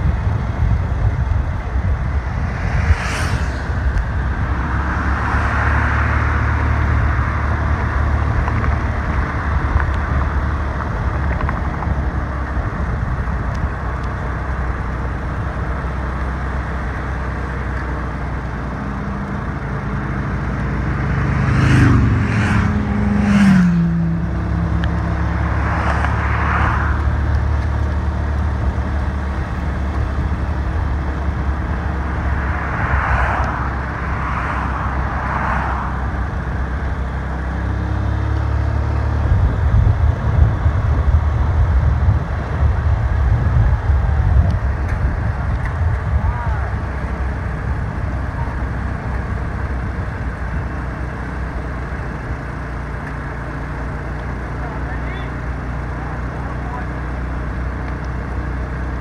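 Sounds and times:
road and wind noise: 0.0s - 59.0s
vehicle engine running: 0.0s - 59.0s
passing whooshes: 1.1s - 10.4s, 19.8s - 27.8s, 30.8s - 36.8s.

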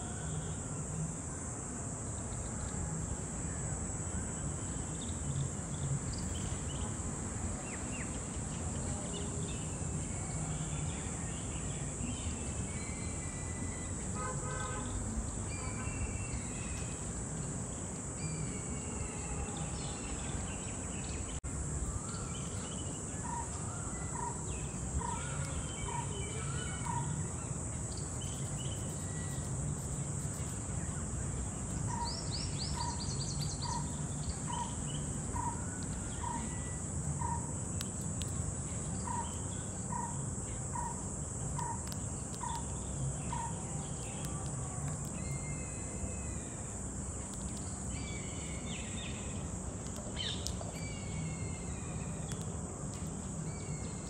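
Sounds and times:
high insect-like hiss: 0.0s - 54.0s
birds calling and singing: 7.6s - 54.0s.

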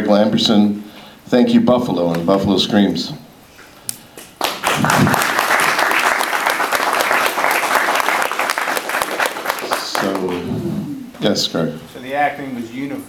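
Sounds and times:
audience applause: 4.4s - 10.4s.

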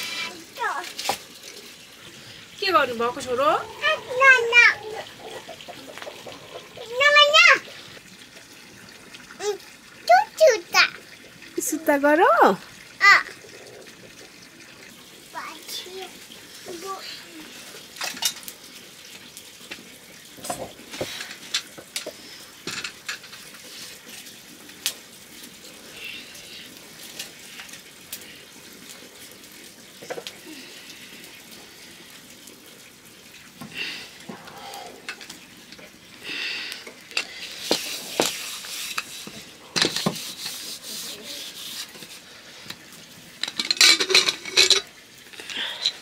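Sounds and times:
utensil scraping metal pot: 0.0s - 1.2s, 2.6s - 7.9s, 37.2s - 42.5s, 43.4s - 45.0s.

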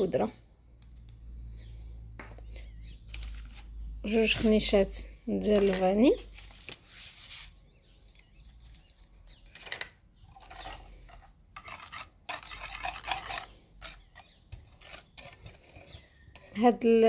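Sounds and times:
whisk scraping ceramic bowl: 10.4s - 16.6s.

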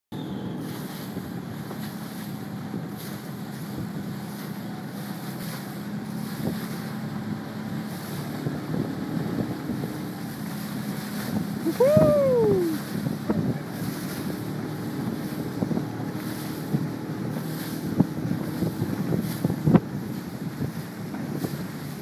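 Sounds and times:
low motor hum: 0.1s - 22.0s
choppy water rushing: 0.2s - 22.0s
wind buffeting microphone: 0.2s - 22.0s.

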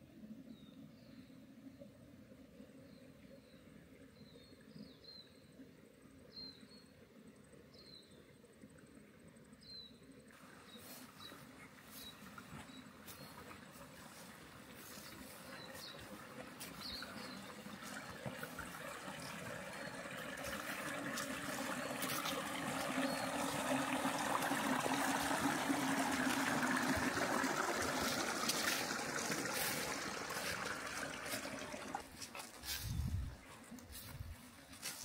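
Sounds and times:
water trickling: 10.3s - 35.0s.

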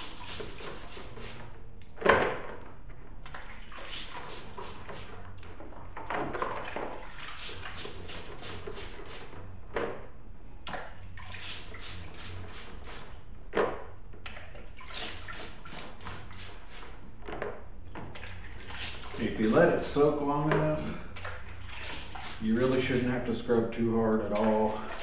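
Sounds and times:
brush scrubbing wet chain: 0.0s - 1.4s, 3.7s - 5.2s, 7.0s - 9.4s, 11.2s - 13.1s, 14.8s - 16.9s, 18.3s - 20.2s, 21.4s - 23.4s
liquid splashing in bucket: 3.2s - 9.0s, 10.6s - 13.0s, 13.6s - 16.8s, 17.9s - 23.3s, 24.2s - 25.0s.

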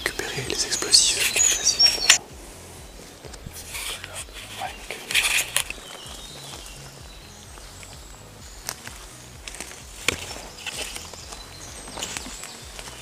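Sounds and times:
footsteps in undergrowth: 0.0s - 13.0s
sharp clicks: 3.2s - 7.0s, 8.6s - 13.0s.

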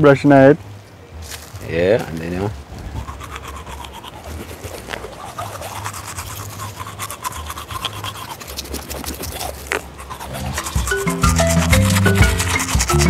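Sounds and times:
toothbrushes scrubbing teeth: 2.9s - 13.0s.

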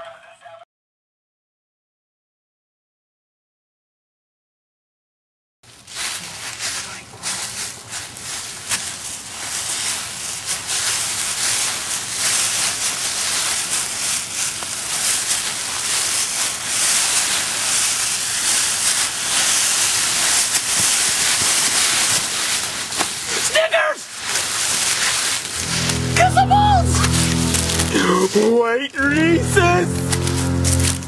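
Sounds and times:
dry leaves rustling and crackling: 5.7s - 28.6s, 29.6s - 31.0s.

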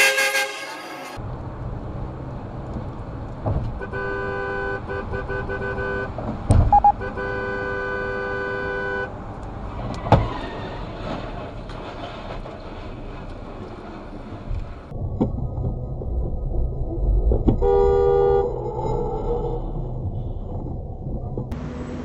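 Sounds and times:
car horn blast: 0.0s - 1.2s, 3.8s - 9.1s, 17.6s - 18.5s
road and tyre noise: 0.0s - 22.0s
short horn beeps: 6.7s - 9.1s.

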